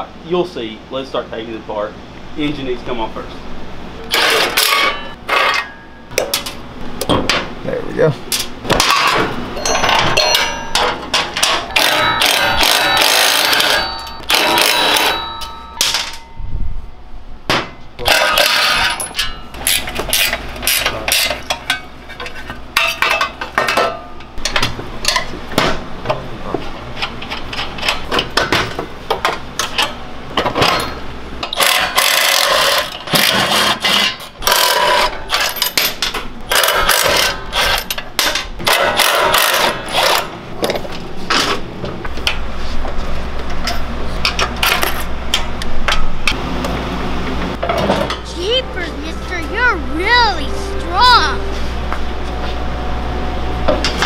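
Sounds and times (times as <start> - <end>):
nuts and bolts clattering: 8.3 - 16.3, 18.0 - 25.3, 27.0 - 40.8
wrenches clinking on metal: 8.3 - 16.3, 18.0 - 25.3, 29.6 - 40.8.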